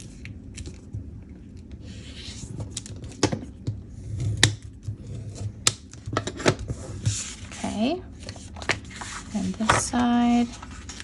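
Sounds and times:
paper rustling: 7.1 - 11.0.

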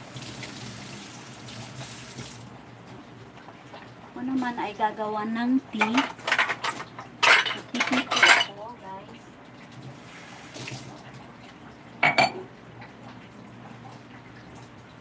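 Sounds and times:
running tap water: 0.0 - 15.0
dishes clattering in a sink: 5.8 - 8.6, 12.0 - 13.0.

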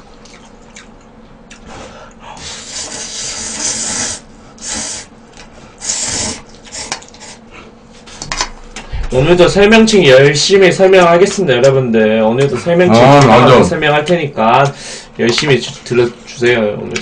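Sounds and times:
man slurping noodles: 2.4 - 5.1, 5.8 - 7.4.

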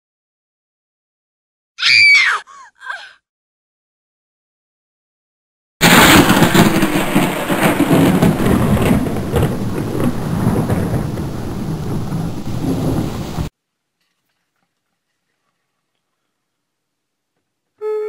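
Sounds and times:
thunder rumbling: 5.8 - 13.5
steady rain: 5.8 - 13.8.

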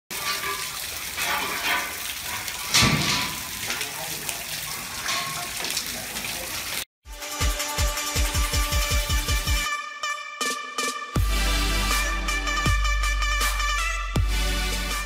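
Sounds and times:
rain splashing on concrete floor: 0.1 - 6.9, 7.8 - 9.7.

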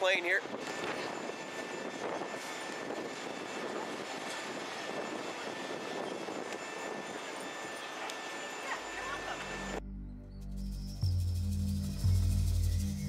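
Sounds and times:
jet engines rushing: 0.0 - 9.8
faint high whine: 0.0 - 13.0.

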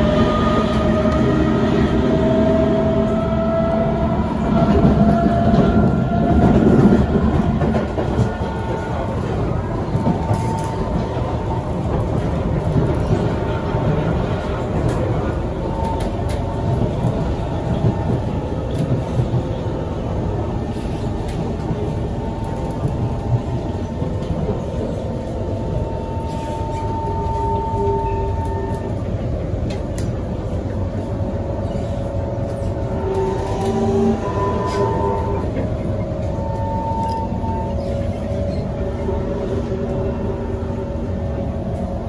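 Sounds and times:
train wheels rumbling on rail: 0.0 - 42.0
rail joint clicks: 2.2 - 40.8.

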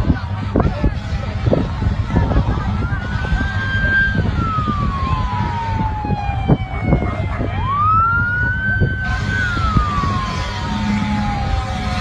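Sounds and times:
low rumble: 0.0 - 12.0
siren wailing: 2.6 - 12.0.

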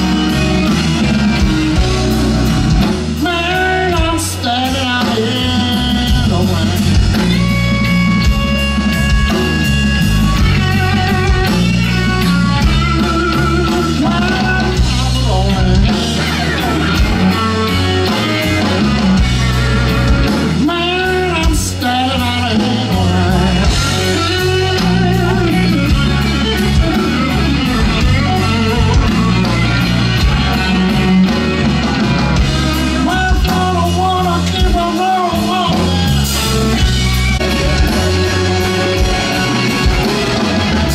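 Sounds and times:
bass guitar: 0.0 - 40.9
drum kit: 0.0 - 40.9
electric guitar: 0.0 - 40.9
man singing: 3.2 - 7.8, 12.6 - 19.2, 20.3 - 29.3, 32.5 - 39.5.

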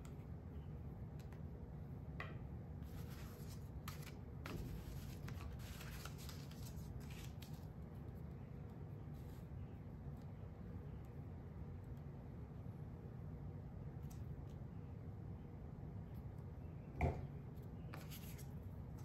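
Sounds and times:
low steady hum: 0.0 - 19.0
paper rustling and sliding: 2.8 - 7.6.

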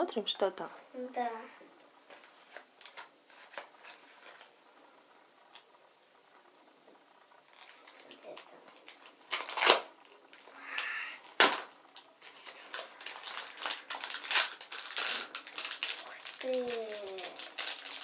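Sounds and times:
paper and packet crinkling: 2.1 - 4.6, 7.5 - 10.5, 11.3 - 18.0.

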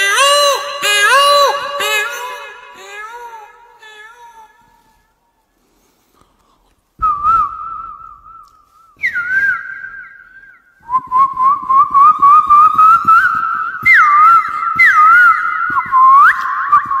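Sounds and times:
man whistling bird song: 7.0 - 17.0.

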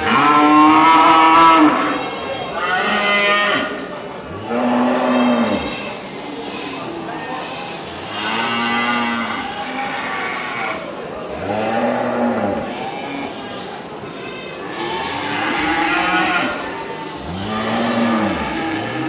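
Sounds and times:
cattle mooing: 17.2 - 19.0.

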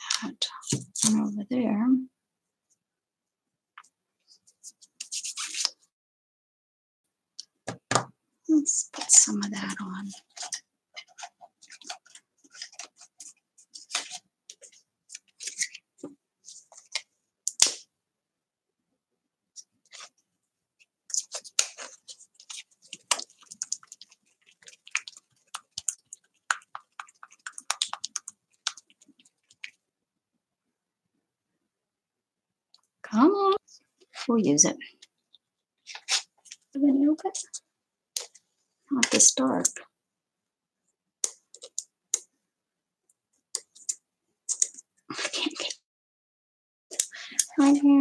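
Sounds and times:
plastic card scraping paper: 4.6 - 5.8, 9.0 - 17.9, 21.1 - 29.8, 35.8 - 36.6, 43.6 - 45.7
small objects clicking and tapping: 21.1 - 29.8.

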